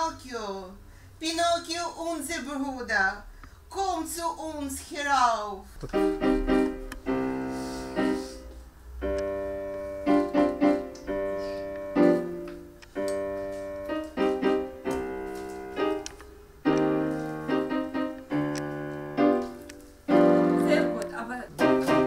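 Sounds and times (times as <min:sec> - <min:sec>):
electronic keyboard playing tune: 0:05.9 - 0:22.0.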